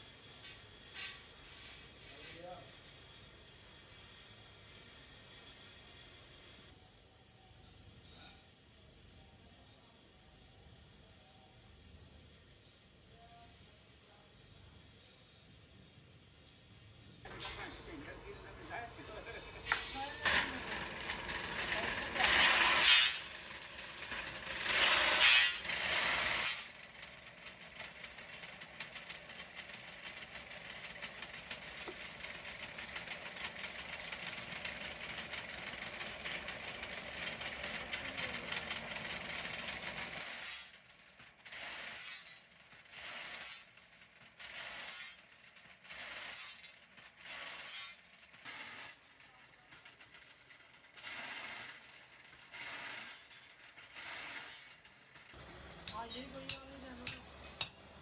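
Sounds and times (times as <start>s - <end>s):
machine cutting steel tube: 17.3s - 40.8s, 52.5s - 57.7s.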